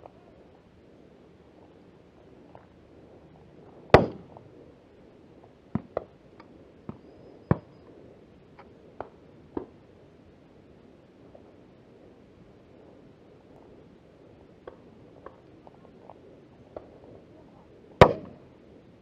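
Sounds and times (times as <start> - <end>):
shotgun shots: 4.0 - 4.2, 18.0 - 18.4.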